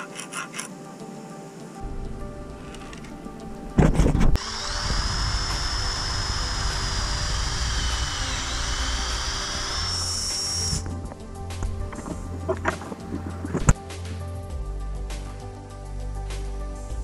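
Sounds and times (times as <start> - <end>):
cordless drill drilling into wood: 4.4 - 10.8.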